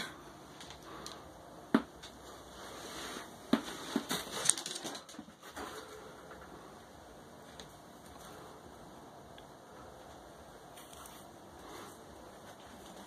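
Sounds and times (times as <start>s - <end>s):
rabbit feet scampering on wood: 3.5s - 6.0s.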